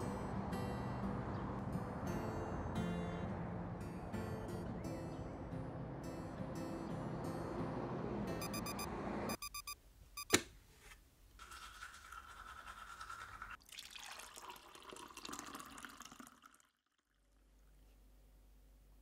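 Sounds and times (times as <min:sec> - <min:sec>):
alarm clock beeps: 0:08.4 - 0:10.4
hot water poured into mug: 0:11.4 - 0:17.3.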